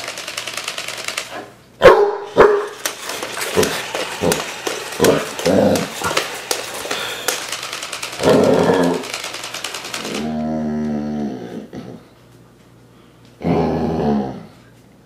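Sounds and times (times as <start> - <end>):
dog barking: 1.8 - 2.8.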